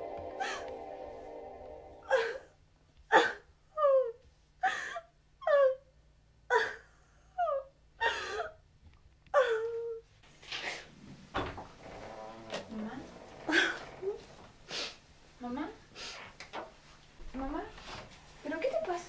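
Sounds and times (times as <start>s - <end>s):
woman sobbing: 2.0s - 2.5s, 3.1s - 5.9s, 6.5s - 8.6s, 9.3s - 10.0s.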